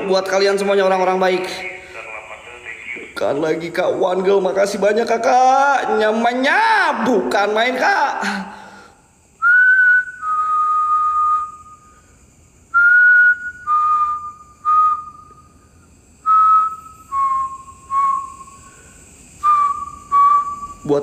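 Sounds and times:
man whistling a tune: 0:09.4 - 0:11.9, 0:12.7 - 0:18.6, 0:19.4 - 0:20.9.

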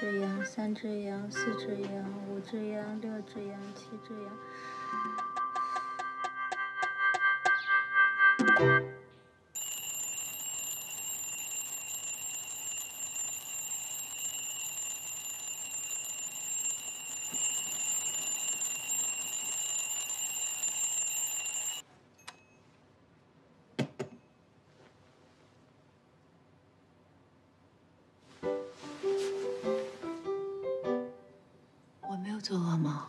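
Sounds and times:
alarm clock ringing: 0:09.6 - 0:21.8.

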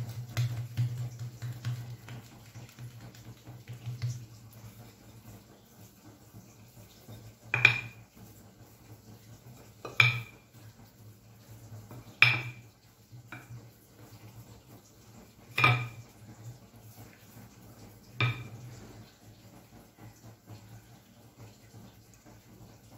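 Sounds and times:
rolling pin knocking on stone: 0:00.1 - 0:02.3, 0:07.5 - 0:08.0, 0:09.9 - 0:10.4, 0:11.9 - 0:12.6, 0:15.5 - 0:16.0, 0:18.2 - 0:18.6.

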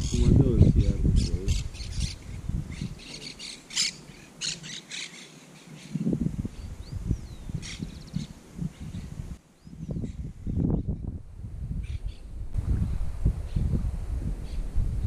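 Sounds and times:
birds squawking: 0:00.0 - 0:06.0
low rumbles: 0:08.6 - 0:15.0.

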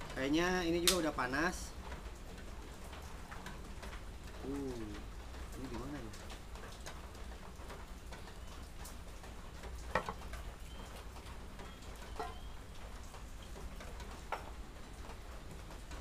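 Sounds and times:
metal cookware knocking on wood: 0:12.2 - 0:12.4.

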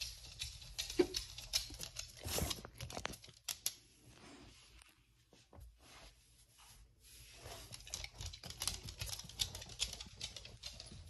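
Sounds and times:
dog claws clicking on wooden floor: 0:00.0 - 0:03.8, 0:07.6 - 0:11.0.

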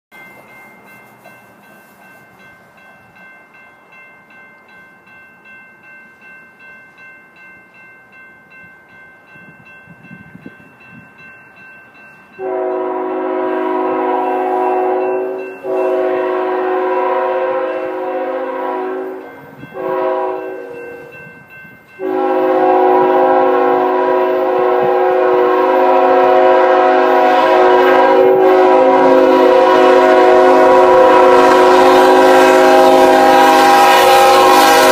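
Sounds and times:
railroad crossing bell ringing: 0:00.1 - 0:34.9
locomotive air horn blasts: 0:12.4 - 0:21.1, 0:22.0 - 0:34.9.

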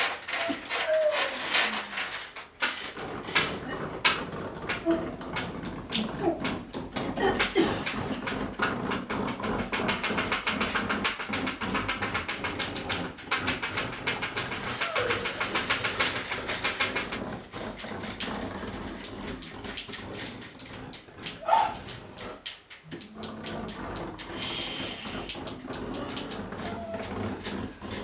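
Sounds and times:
rapid rattling clicks: 0:00.0 - 0:28.0
dog whimpering: 0:00.3 - 0:01.9, 0:14.7 - 0:15.6, 0:21.4 - 0:21.8, 0:25.9 - 0:27.4.

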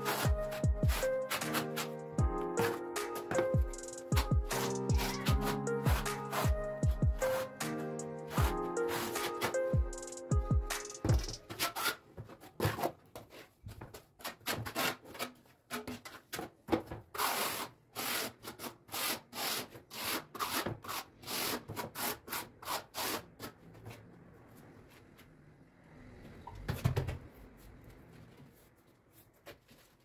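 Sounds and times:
trowel scraping mortar on tile: 0:00.0 - 0:02.0, 0:02.6 - 0:03.5, 0:04.1 - 0:06.5, 0:08.3 - 0:09.8, 0:11.4 - 0:12.0, 0:14.2 - 0:16.3, 0:17.1 - 0:23.6.

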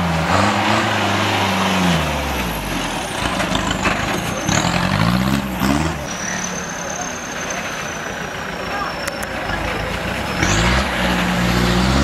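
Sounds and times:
jeep engine revving: 0:00.0 - 0:06.4, 0:10.0 - 0:12.0.

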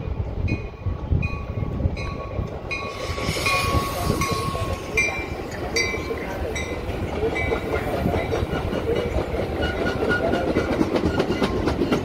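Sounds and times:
train rumbling: 0:00.0 - 0:12.0
thin high squeal: 0:02.7 - 0:06.2.

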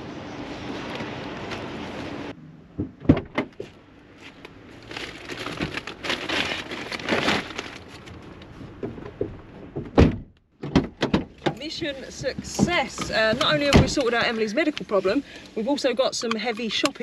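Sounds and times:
sharp knocks: 0:02.8 - 0:03.6
plastic bags rustling: 0:04.3 - 0:08.5
heavy thud: 0:09.2 - 0:11.3.

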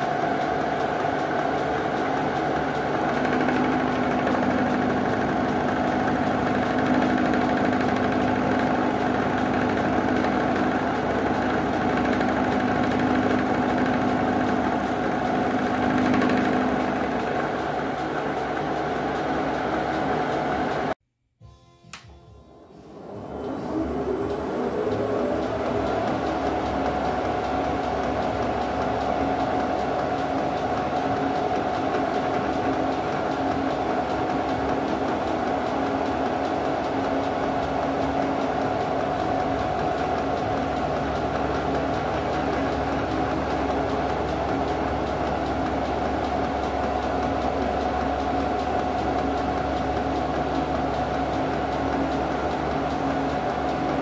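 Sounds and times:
spindle motor whining: 0:22.7 - 0:33.7.

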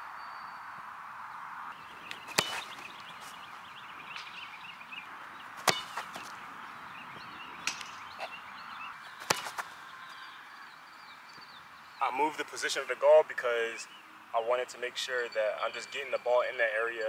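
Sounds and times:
outdoor background hiss: 0:00.0 - 0:17.0
soccer ball kicked: 0:02.2 - 0:02.9, 0:05.6 - 0:06.3.

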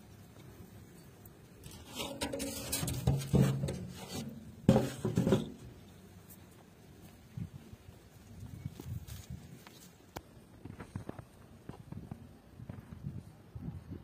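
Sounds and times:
metal lid scraping over clay rim: 0:01.6 - 0:05.7.

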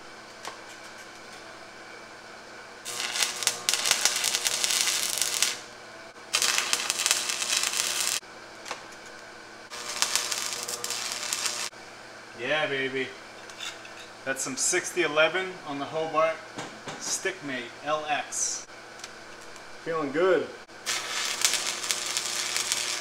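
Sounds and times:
welding arc crackling: 0:02.8 - 0:11.7, 0:20.7 - 0:23.0.

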